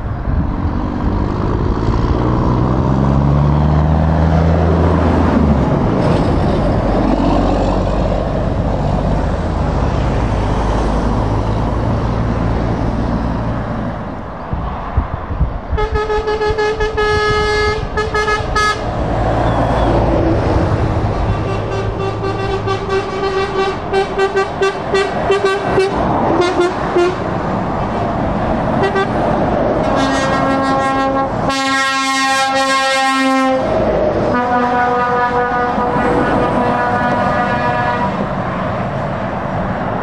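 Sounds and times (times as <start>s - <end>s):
diesel engines and tyres rumbling: 0.0s - 40.0s
lorry air horns: 15.8s - 18.9s, 21.2s - 27.3s, 28.8s - 29.1s, 29.8s - 33.7s, 34.3s - 38.4s.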